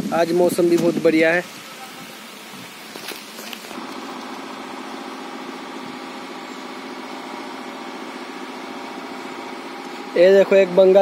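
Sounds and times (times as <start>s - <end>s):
engine idling: 3.8s - 11.0s.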